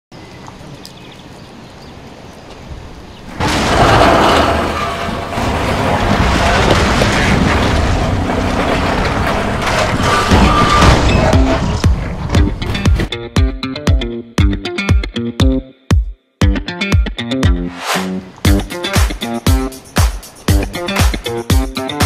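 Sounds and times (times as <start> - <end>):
outdoor ambience: 0.1 - 13.2
loud noisy rumble: 3.3 - 13.1
scattered knocks: 3.4 - 13.1.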